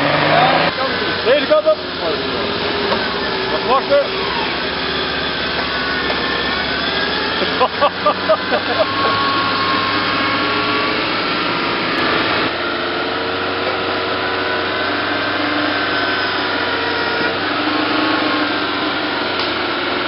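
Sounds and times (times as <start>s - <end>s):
engine at high revs: 0.0s - 20.0s.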